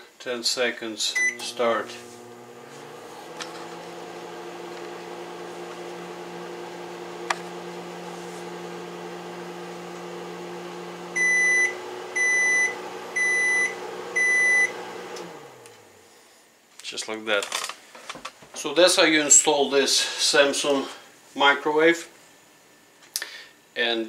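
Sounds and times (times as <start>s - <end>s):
microwave humming: 1.1s - 16.0s.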